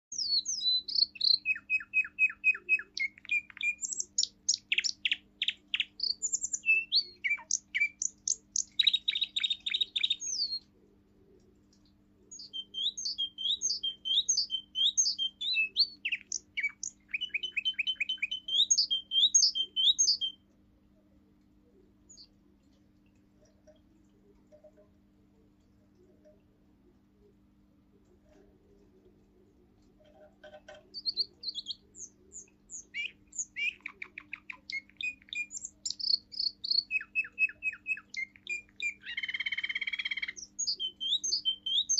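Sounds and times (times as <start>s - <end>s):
canary singing trills: 0.1s - 10.7s, 12.3s - 20.4s, 22.1s - 22.3s, 30.0s - 41.9s.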